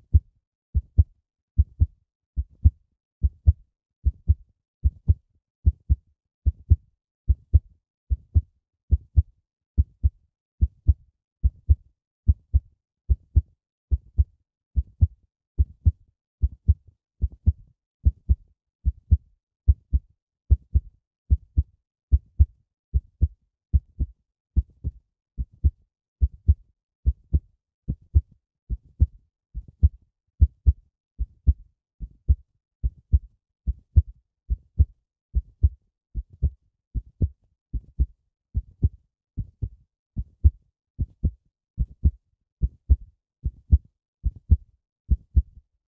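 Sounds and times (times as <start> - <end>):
heartbeat thumps: 0.8 - 9.2, 29.8 - 31.6, 34.8 - 38.1, 38.8 - 39.8, 40.4 - 43.0, 43.7 - 45.5.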